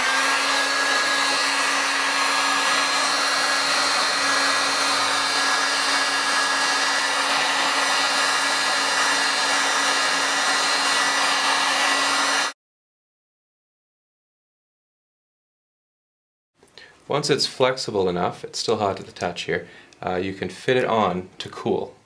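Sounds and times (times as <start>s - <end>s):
heat gun blowing air: 0.0s - 12.6s.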